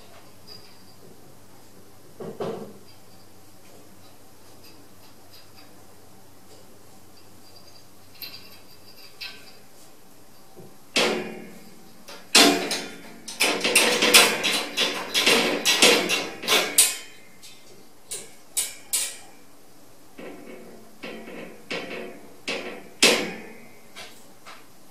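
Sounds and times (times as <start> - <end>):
metal cage door rattling: 11.0 - 17.2, 20.2 - 24.1.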